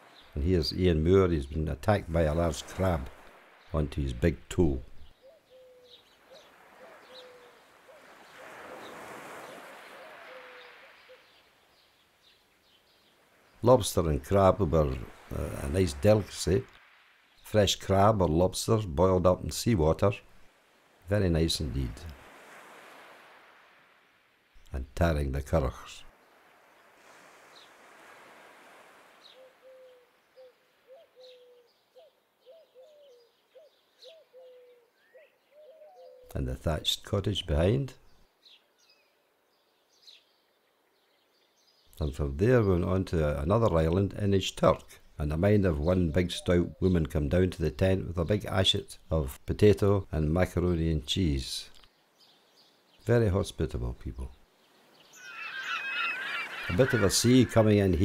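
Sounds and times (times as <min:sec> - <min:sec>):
shallow water rushing: 0:02.0 - 0:04.1, 0:06.2 - 0:11.7, 0:13.0 - 0:18.2, 0:20.0 - 0:24.6, 0:26.1 - 0:29.7, 0:54.7 - 0:58.0
low bird calls: 0:04.7 - 0:13.6, 0:29.1 - 0:36.4, 0:53.8 - 0:58.0
thin high bird chirps: 0:54.7 - 0:56.7.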